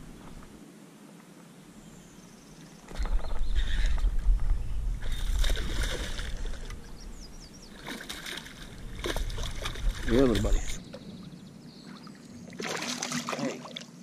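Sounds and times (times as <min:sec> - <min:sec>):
low rumble: 0:03.0 - 0:07.7, 0:08.6 - 0:11.7
fish splashing at water surface: 0:12.6 - 0:13.8.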